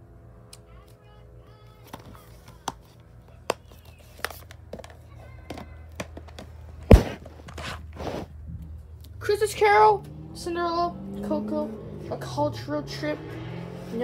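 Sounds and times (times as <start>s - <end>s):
plastic cases clicking and knocking: 3.5s - 7.0s
loud thump: 6.9s - 7.2s.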